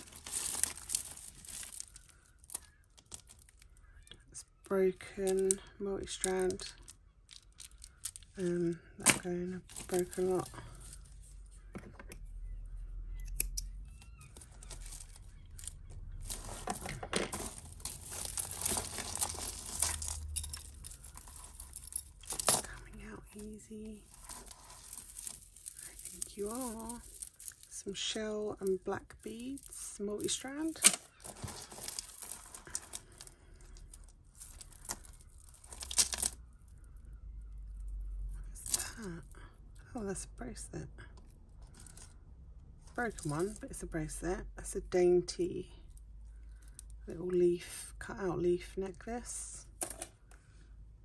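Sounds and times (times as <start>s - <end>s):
jewellery rustling and clinking: 0.0s - 44.2s, 49.6s - 50.4s
sharp small clicks: 13.2s - 14.5s.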